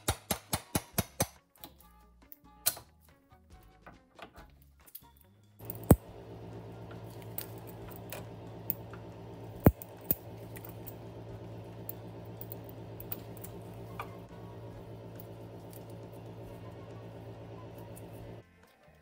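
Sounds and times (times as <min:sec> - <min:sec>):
metal snips snapping: 0:05.0 - 0:18.4
steady hum: 0:05.6 - 0:18.4.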